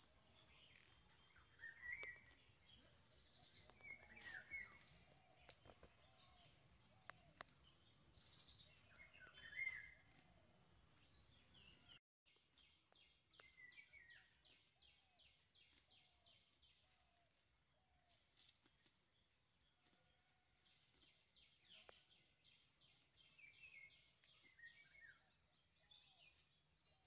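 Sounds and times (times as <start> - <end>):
birds chirping: 0.0 - 16.8.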